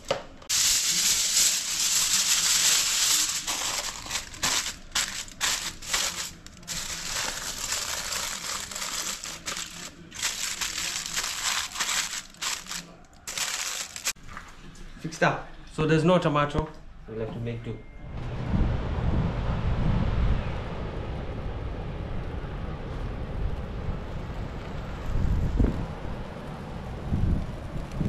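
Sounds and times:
crinkling rustling handling noise: 0:00.5 - 0:14.5.

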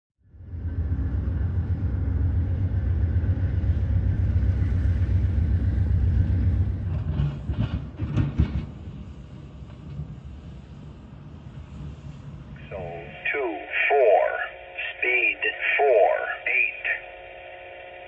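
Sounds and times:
train rumbling: 0:00.2 - 0:16.3
train clacks: 0:00.6 - 0:12.2.

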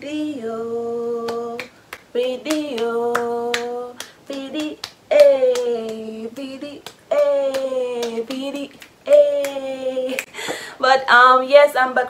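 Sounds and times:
woman singing long notes: 0:00.0 - 0:10.3
hand clapping: 0:01.3 - 0:10.3.

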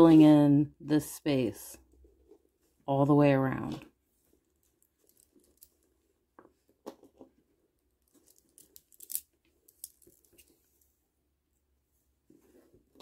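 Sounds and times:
plastic beads clicking: 0:08.2 - 0:10.2.

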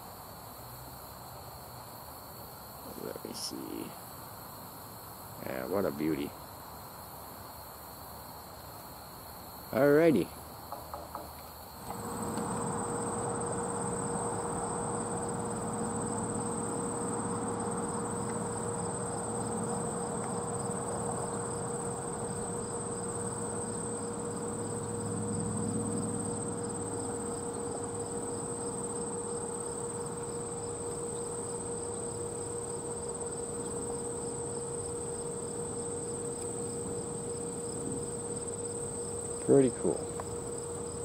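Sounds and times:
faint steady hum: 0:00.0 - 0:41.0
insects trilling: 0:00.0 - 0:41.0
pulsing insect call: 0:00.0 - 0:41.0
low rushing background noise: 0:11.6 - 0:41.0.

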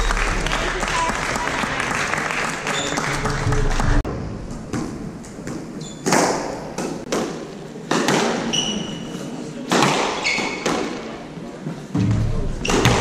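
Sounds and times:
squash ball hitting rackets and walls: 0:04.7 - 0:09.0, 0:09.7 - 0:11.2, 0:12.0 - 0:13.0
shoes squeaking on wooden floor: 0:08.5 - 0:09.2.

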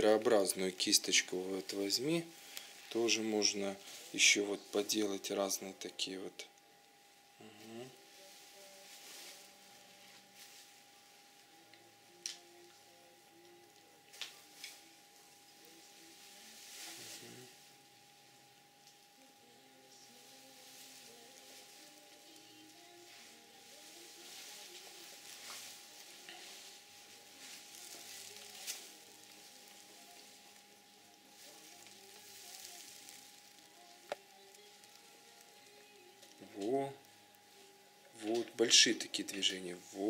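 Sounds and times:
faint steady hum: 0:00.0 - 0:40.0
brush swishing on canvas: 0:08.1 - 0:09.6, 0:16.0 - 0:17.6, 0:22.9 - 0:30.4.

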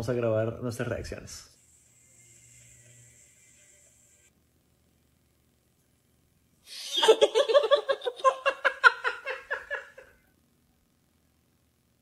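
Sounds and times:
young men laughing: 0:06.7 - 0:10.2.

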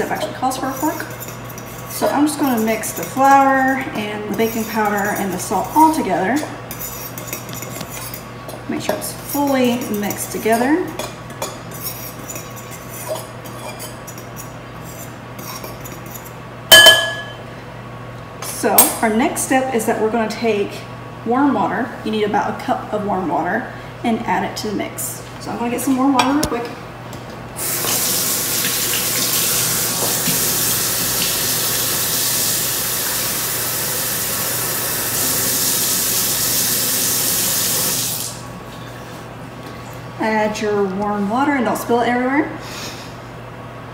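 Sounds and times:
fork stirring flour in bowl: 0:00.0 - 0:08.2, 0:08.9 - 0:16.3
fork clinking against bowl: 0:15.4 - 0:17.4
faucet water running into cup: 0:27.6 - 0:38.4.

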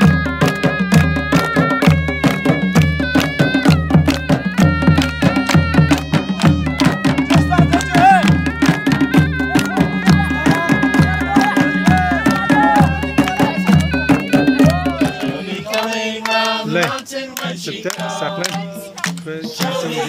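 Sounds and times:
wavering folk melody: 0:00.0 - 0:15.7
steady drumbeat: 0:00.0 - 0:20.0
voices: 0:02.0 - 0:20.0.

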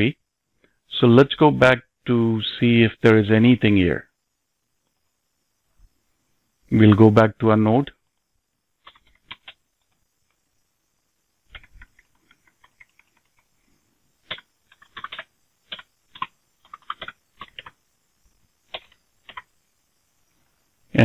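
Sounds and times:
typing on computer keyboard: 0:08.8 - 0:10.0, 0:11.5 - 0:13.5, 0:14.2 - 0:17.8, 0:18.7 - 0:19.5.

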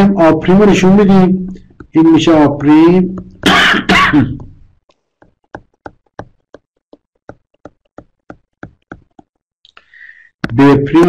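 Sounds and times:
pen tapping on paper: 0:00.9 - 0:09.5.

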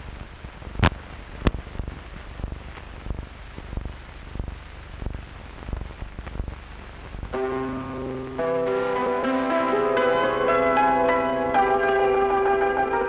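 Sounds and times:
film soundtrack hiss: 0:00.0 - 0:13.0
pops and crackles: 0:00.2 - 0:07.4.

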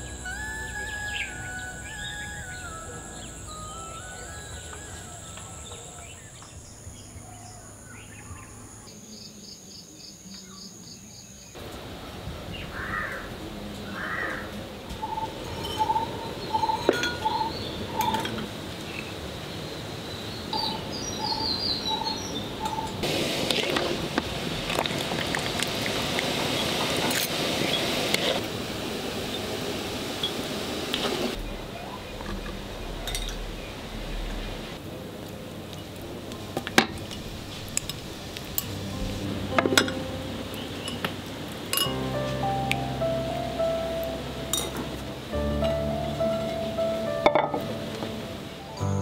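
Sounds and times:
soft music with held notes: 0:00.0 - 0:06.3, 0:38.6 - 0:49.0
spoons and bowls clinking: 0:41.7 - 0:42.0.

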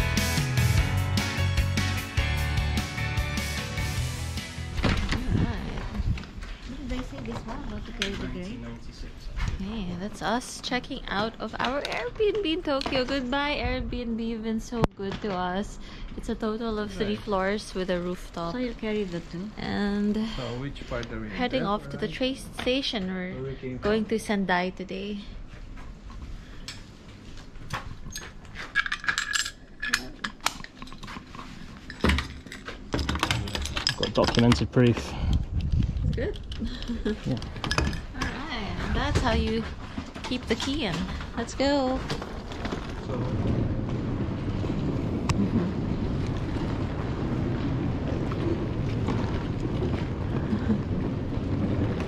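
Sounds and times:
suitcase wheels rolling on pavement: 0:03.8 - 0:23.2, 0:30.7 - 0:52.0
wind buffeting microphone: 0:05.0 - 0:08.3, 0:34.5 - 0:52.0
metal clicks and clinks: 0:28.7 - 0:31.1, 0:31.8 - 0:34.6.

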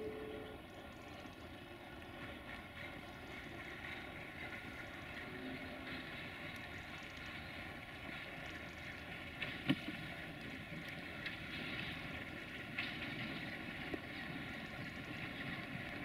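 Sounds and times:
locomotive high whistle: 0:00.0 - 0:00.6
distant locomotive engine drone: 0:00.0 - 0:16.0.

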